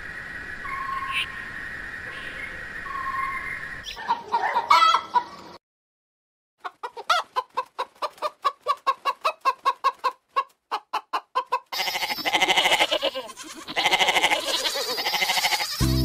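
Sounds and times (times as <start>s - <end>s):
chicken clucking: 3.9s - 5.6s, 6.6s - 15.8s.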